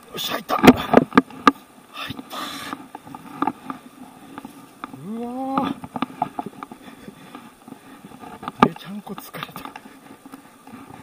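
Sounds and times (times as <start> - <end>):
grunt of effort: 5.0 - 5.8.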